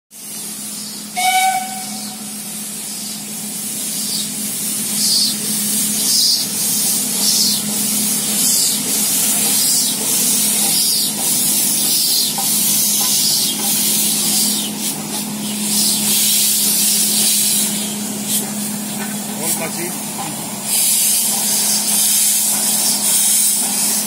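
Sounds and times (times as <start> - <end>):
steam hissing: 0.1 - 24.0
locomotive exhaust chuffs: 0.2 - 24.0
steam locomotive whistle: 1.1 - 2.4.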